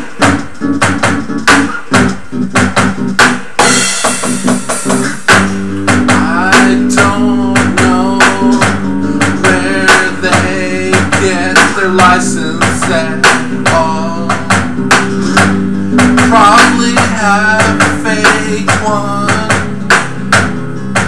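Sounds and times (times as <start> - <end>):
rock song with bass and drums: 0.0 - 21.0
man singing: 6.0 - 20.1.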